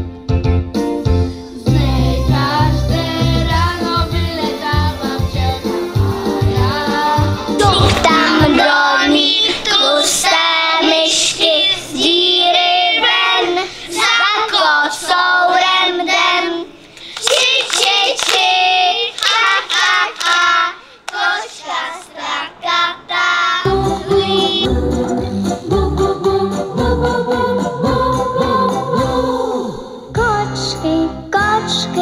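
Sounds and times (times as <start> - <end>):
children singing: 1.7 - 29.8
hand claps: 17.0 - 20.5, 21.1 - 21.3
music with deep bass: 23.7 - 29.4.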